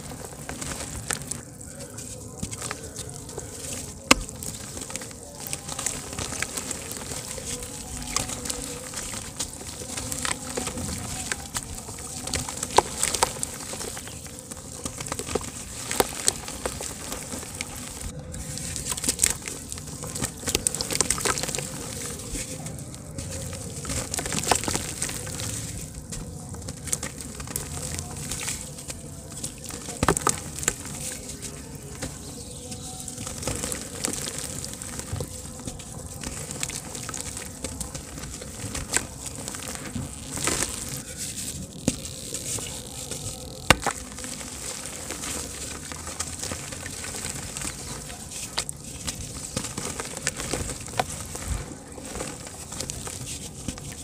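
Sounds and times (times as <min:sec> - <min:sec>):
dirt crumbs trickling: 0:00.0 - 0:54.0
hands crushing dry dirt: 0:00.0 - 0:54.0.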